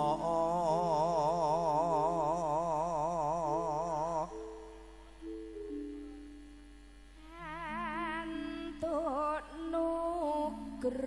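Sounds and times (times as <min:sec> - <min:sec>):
man chanting with vibrato: 0:00.0 - 0:05.0
sustained instrumental notes: 0:00.0 - 0:10.6.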